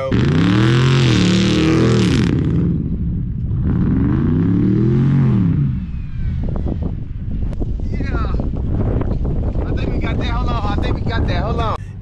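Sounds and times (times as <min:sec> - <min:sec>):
car engine revving: 0:00.0 - 0:07.6.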